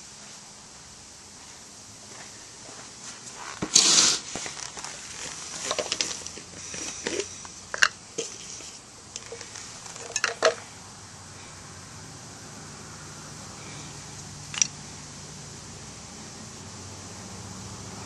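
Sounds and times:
tinder rustling and crackling: 3.0s - 10.7s.

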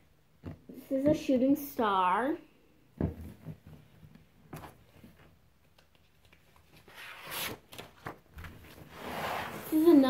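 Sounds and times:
paper rustling: 4.5s - 9.9s
notebook page turning: 5.8s - 9.6s.

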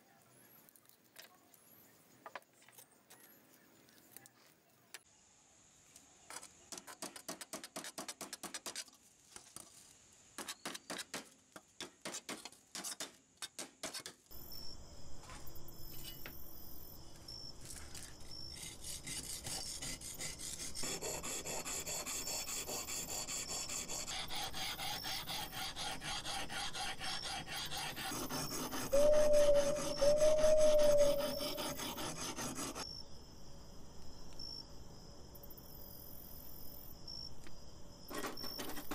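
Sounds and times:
scraper blade scraping rusty metal: 17.9s - 32.8s.

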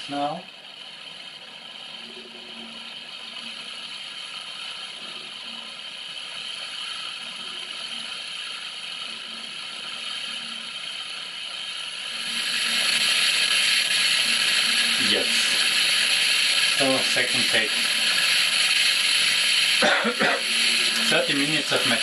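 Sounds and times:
faint appliance hum: 0.0s - 22.0s
steady hiss: 0.0s - 22.0s.

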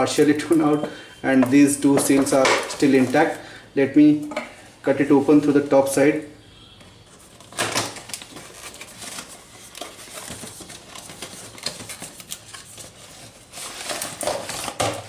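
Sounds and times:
cardboard flaps rustling and scraping: 7.5s - 15.0s.

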